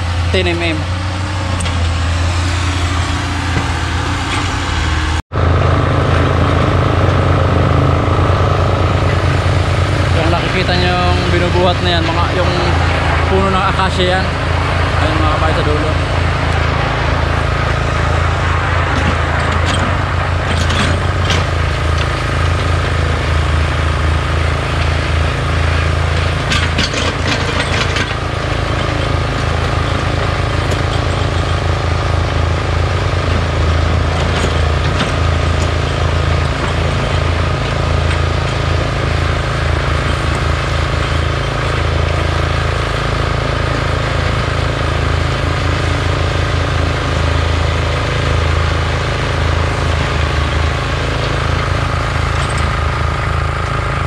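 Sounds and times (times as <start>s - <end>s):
excavator diesel engine running: 0.0s - 54.0s
high whine: 0.0s - 54.0s
clicking and rattling: 26.2s - 29.2s.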